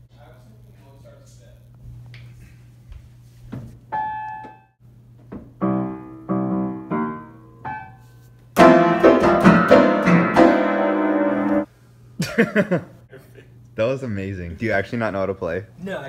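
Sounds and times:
piano keys banged: 8.6 - 11.7.

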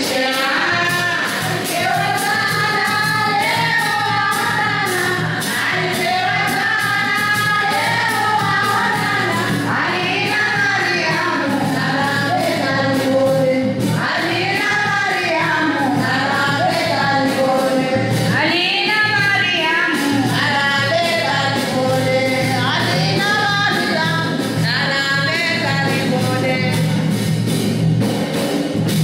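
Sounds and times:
women singing together: 0.0 - 27.2
percussion beat: 0.0 - 29.0.

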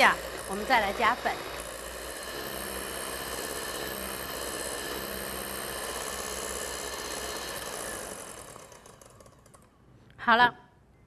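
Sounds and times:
electric hand mixer whisking batter: 0.0 - 9.6.

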